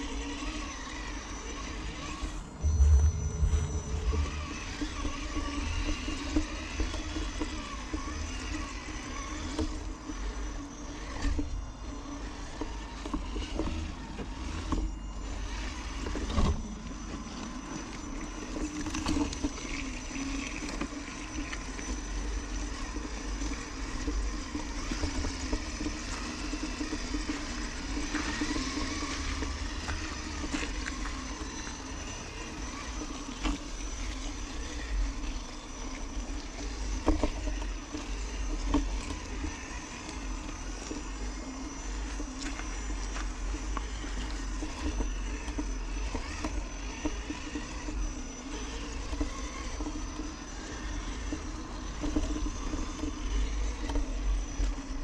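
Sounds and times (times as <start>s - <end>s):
toy car electric motor running: 0.0s - 2.7s, 4.2s - 55.0s.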